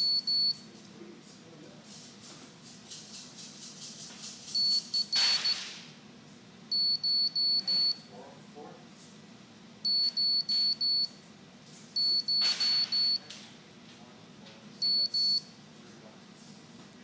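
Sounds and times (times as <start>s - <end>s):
morse code buzzer beeps: 0.0s - 0.6s, 4.5s - 5.7s, 6.7s - 8.1s, 9.8s - 11.2s, 12.0s - 13.3s, 14.8s - 15.6s.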